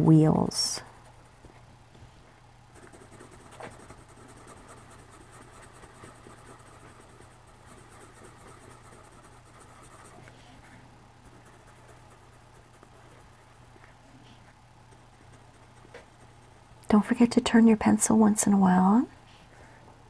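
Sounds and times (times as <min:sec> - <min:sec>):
coloured pencil scratching on paper: 0:02.8 - 0:16.6.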